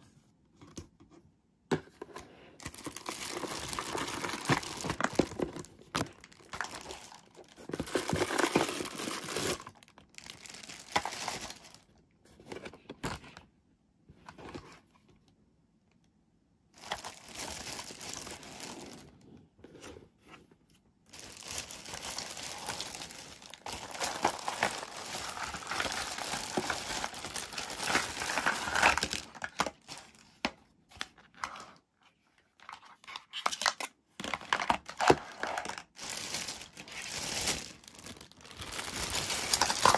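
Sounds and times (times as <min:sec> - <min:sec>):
plastic bags crinkling: 0:02.6 - 0:11.9, 0:16.8 - 0:19.2, 0:21.1 - 0:30.3, 0:33.4 - 0:39.9.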